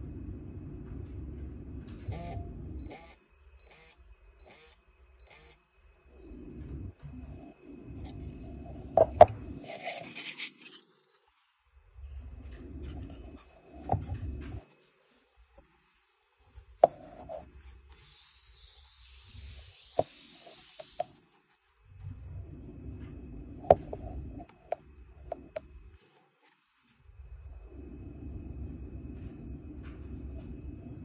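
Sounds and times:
metal scraping on tabletop: 0:08.0 - 0:11.2.

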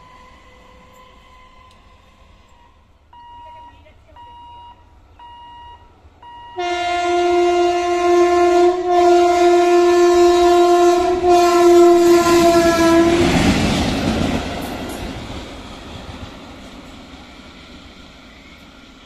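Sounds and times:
locomotive passing rumble: 0:05.8 - 0:19.0
locomotive horn blast: 0:06.6 - 0:13.4.

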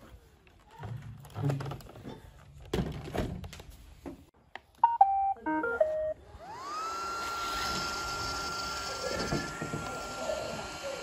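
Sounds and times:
robot vacuum motor whir: 0:06.4 - 0:11.0.

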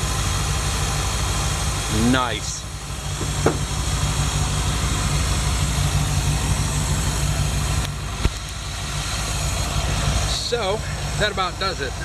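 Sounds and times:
car engine idling: 0:00.0 - 0:12.0
short knock: 0:03.2 - 0:03.7.

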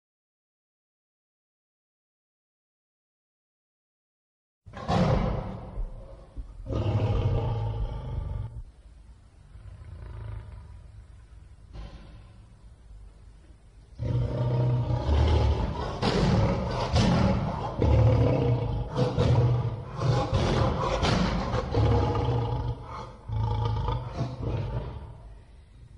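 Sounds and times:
lion roars: 0:04.7 - 0:08.6, 0:09.6 - 0:10.8, 0:14.0 - 0:25.3.

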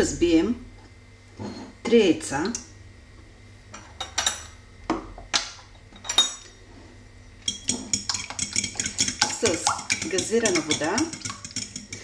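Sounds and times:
glassware and cutlery clinking: 0:05.9 - 0:06.5
fork beating eggs in glass bowl: 0:07.4 - 0:12.0.

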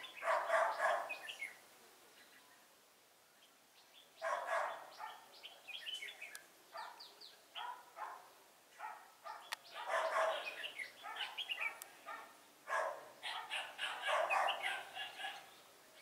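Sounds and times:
birds singing chirpy phrases: 0:00.0 - 0:16.0
dog barking: 0:00.2 - 0:01.2, 0:04.2 - 0:05.3, 0:06.7 - 0:15.5.

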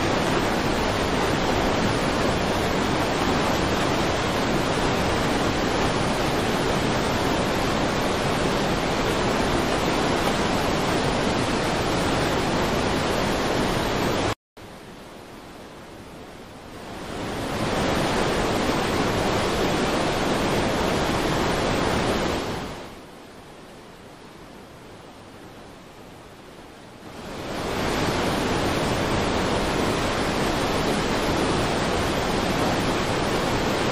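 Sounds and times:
floodwater rushing: 0:00.0 - 0:14.4, 0:16.6 - 0:23.0, 0:26.8 - 0:33.9
heavy rain: 0:00.0 - 0:33.9.

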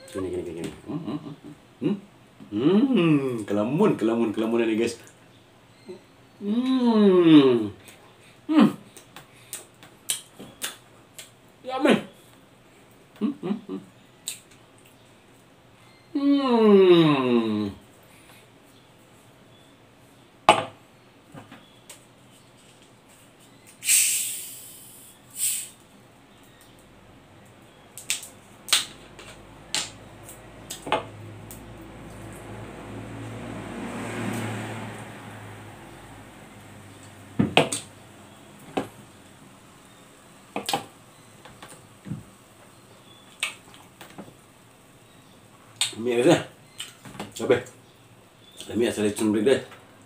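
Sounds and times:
carbonation gas hissing: 0:23.8 - 0:25.8.

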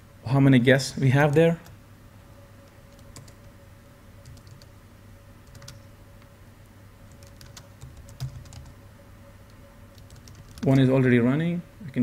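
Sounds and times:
laptop keyboard typing: 0:02.9 - 0:03.6, 0:04.2 - 0:04.7, 0:05.4 - 0:05.8, 0:07.1 - 0:08.8, 0:09.5 - 0:10.9.

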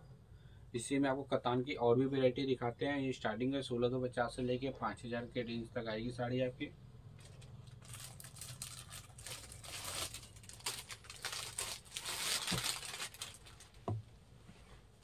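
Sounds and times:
cloth rustling and crinkling: 0:07.2 - 0:15.0.

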